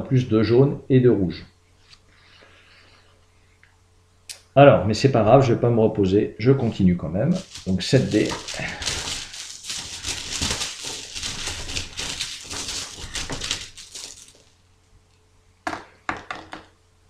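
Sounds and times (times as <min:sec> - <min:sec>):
plastic dice rattling: 0:07.4 - 0:14.4.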